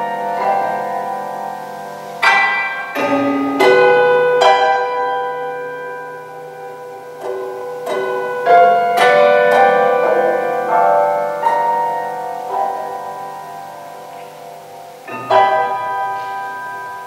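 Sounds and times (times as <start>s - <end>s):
prepared piano notes ringing: 0.0s - 17.0s.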